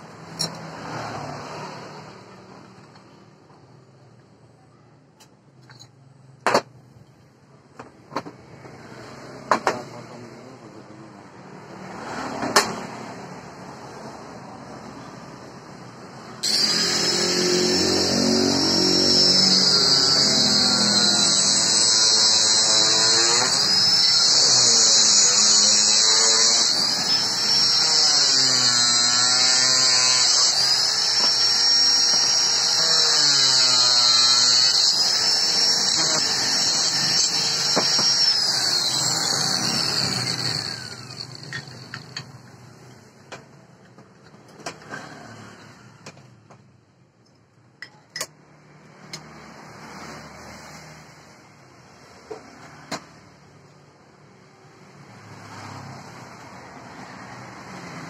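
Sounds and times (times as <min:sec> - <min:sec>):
angle grinder cutting steel: 0:16.4 - 0:42.6.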